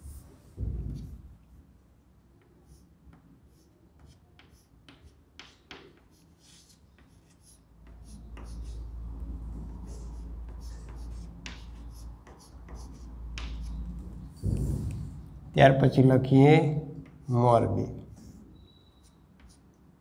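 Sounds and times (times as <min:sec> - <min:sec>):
chalk writing on a blackboard: 0:02.4 - 0:14.6, 0:17.0 - 0:17.4, 0:18.0 - 0:19.9
low rumble: 0:14.3 - 0:15.5.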